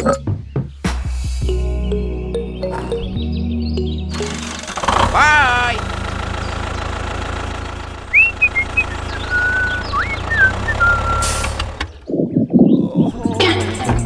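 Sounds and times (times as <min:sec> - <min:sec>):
tractor engine rumbling: 0:01.5 - 0:14.0.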